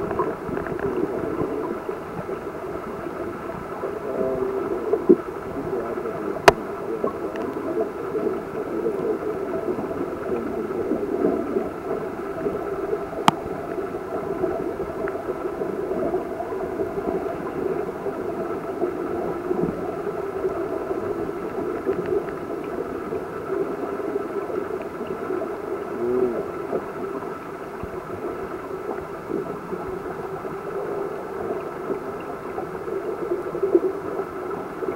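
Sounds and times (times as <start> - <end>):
faint hum: 0.0 - 34.9
muffled churning water underwater: 0.0 - 34.9.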